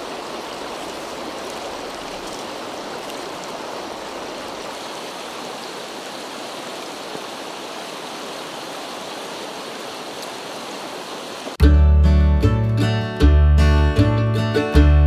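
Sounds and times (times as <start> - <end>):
stream flowing over rocks: 0.0 - 11.6
acoustic guitar music: 11.6 - 15.0.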